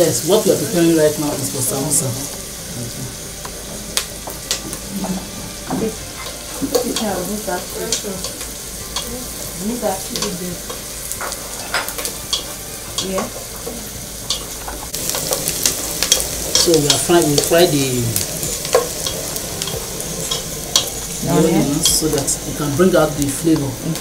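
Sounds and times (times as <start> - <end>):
onions sizzling in oil: 0.0 - 24.0
spoon scraping a pan: 4.5 - 9.4, 10.2 - 17.5, 18.4 - 22.1.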